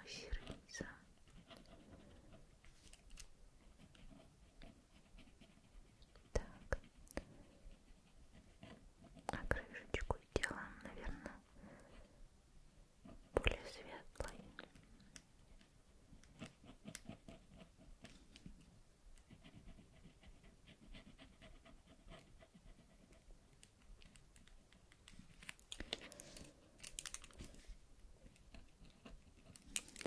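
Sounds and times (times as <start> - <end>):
pencil scratching on paper: 1.2 - 2.8, 3.6 - 9.8, 16.3 - 18.1, 19.2 - 23.3.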